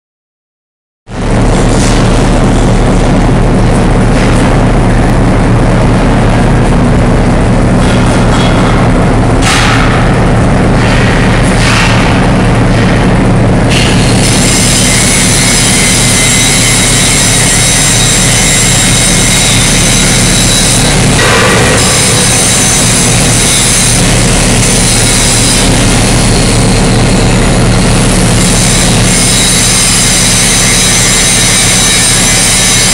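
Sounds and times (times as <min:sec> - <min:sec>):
diesel locomotive engine drone: 0:01.1 - 0:32.9
high whining tones: 0:01.1 - 0:32.9.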